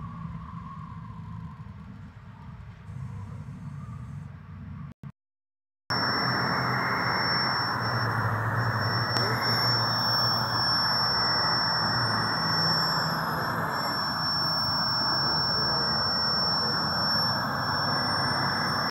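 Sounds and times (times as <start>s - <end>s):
high-pitched whine: 5.9s - 18.9s
low hum: 5.9s - 18.9s.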